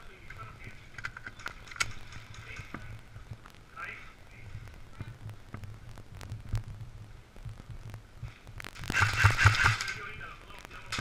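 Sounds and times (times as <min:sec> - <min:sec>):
muffled footsteps: 0:00.3 - 0:03.6, 0:04.3 - 0:08.9
sharp clicks: 0:07.4 - 0:11.0.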